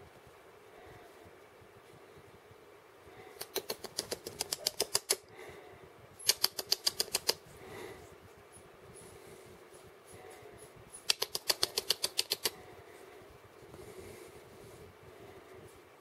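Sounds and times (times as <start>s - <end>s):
rapid sharp clicks: 3.4s - 5.2s, 6.2s - 7.4s, 11.0s - 12.6s.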